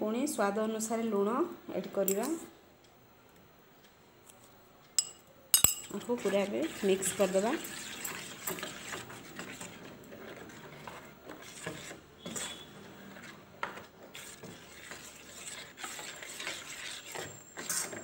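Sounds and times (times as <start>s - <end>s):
spoon stirring wet batter: 4.3s - 18.0s
spoon clinking against bowl: 5.0s - 6.1s.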